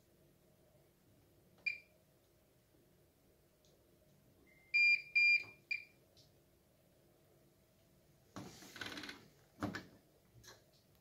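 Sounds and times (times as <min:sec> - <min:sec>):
washing machine panel beeps: 0:01.6 - 0:01.9, 0:04.5 - 0:06.0.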